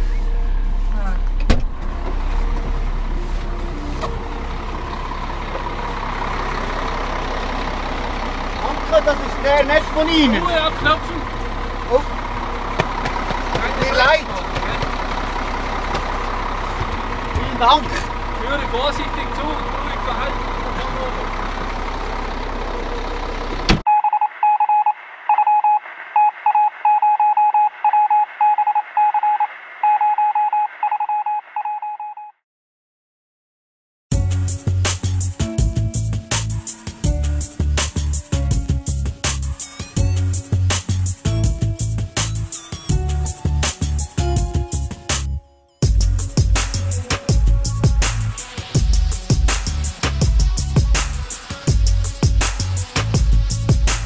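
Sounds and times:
diesel engine idling: 0:00.0 - 0:23.9, 0:34.2 - 0:54.0
morse code beeping over radio: 0:23.9 - 0:32.3.

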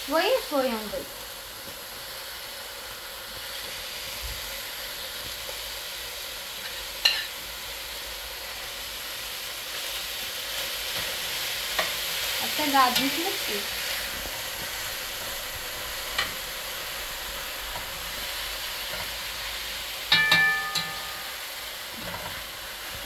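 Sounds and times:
chicken sizzling in a pot: 0:00.0 - 0:23.0
herbs stirred in pot: 0:10.5 - 0:22.5.

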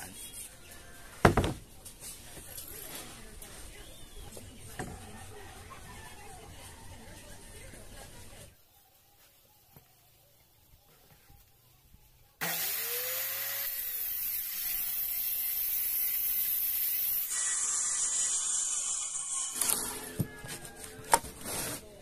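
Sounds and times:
circular saw cutting plywood: 0:12.4 - 0:21.3.

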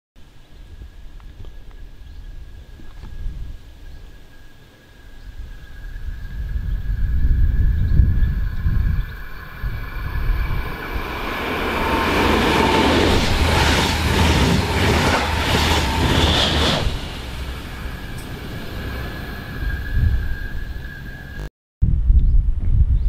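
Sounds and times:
train passing: 0:05.0 - 0:21.5.

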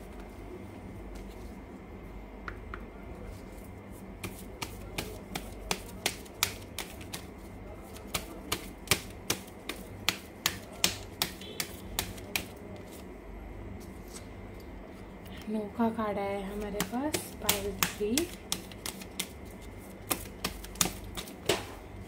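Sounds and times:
cards being shuffled: 0:04.2 - 0:13.1, 0:13.8 - 0:14.3, 0:16.6 - 0:21.6.

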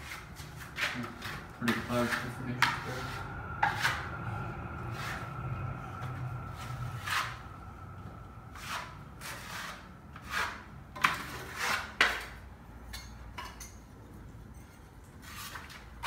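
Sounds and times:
hand tool rubbing plaster wall: 0:00.0 - 0:04.2, 0:04.8 - 0:07.6, 0:08.5 - 0:12.1.

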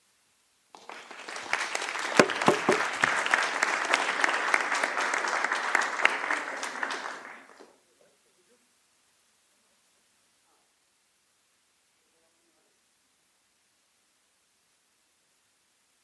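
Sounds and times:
audience applauding: 0:00.8 - 0:07.7.

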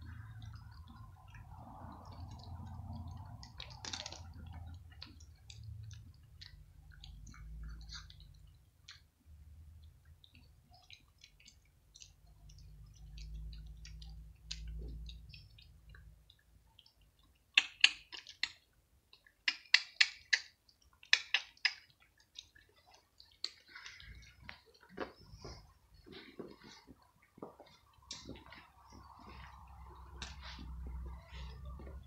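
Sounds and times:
cats crunching dry kibble: 0:00.6 - 0:09.0.

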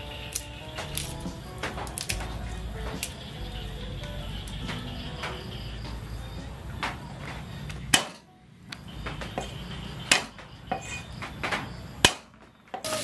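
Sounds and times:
cleaver chopping on wooden block: 0:11.5 - 0:12.3.

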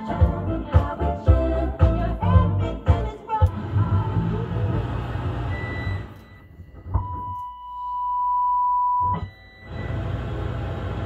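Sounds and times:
music: 0:00.0 - 0:05.3.

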